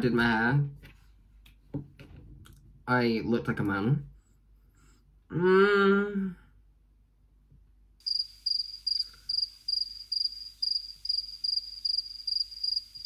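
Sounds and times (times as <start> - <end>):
cricket chirping: 8.0 - 13.0.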